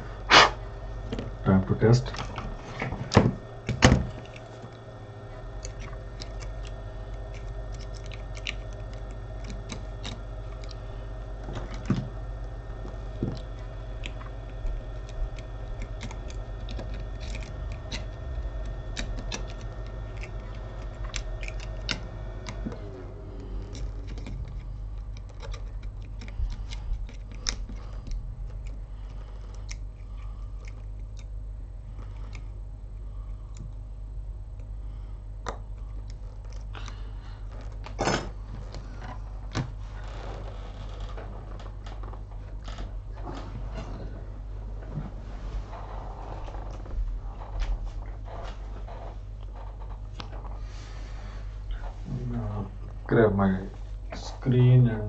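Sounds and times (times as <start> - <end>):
whining tone: 0.0 - 50.6
low electrical hum: 0.0 - 55.0
tweezers clicking and tapping: 12.8 - 22.8.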